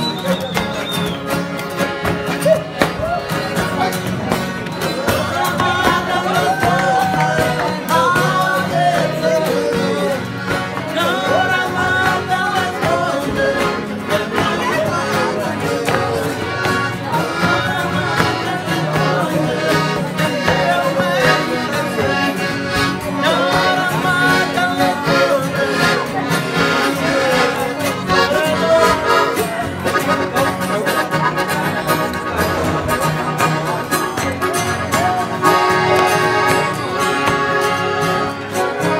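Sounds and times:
accordion playing: 0.0s - 38.9s
live band playing: 0.0s - 38.9s.

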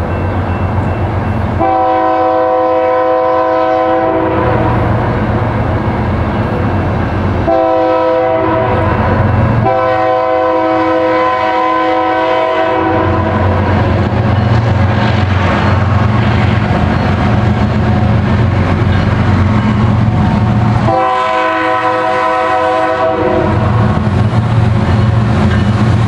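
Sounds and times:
locomotive air horn: 1.6s - 4.8s, 7.4s - 13.6s, 20.8s - 24.0s.

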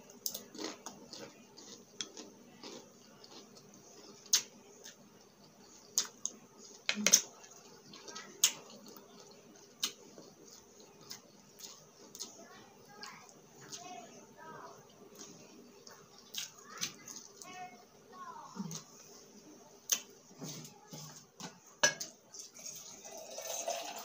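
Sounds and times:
chewing crispy chips: 0.0s - 17.8s.

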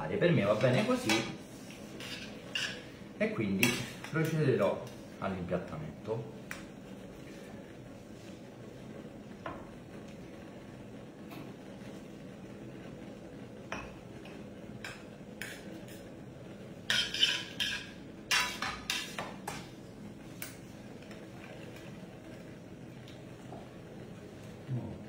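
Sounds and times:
metal utensil scraping a pan: 0.5s - 3.0s, 16.8s - 19.3s.

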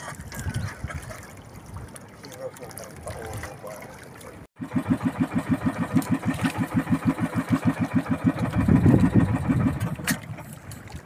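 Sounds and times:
small boat engine chugging: 2.4s - 11.0s.

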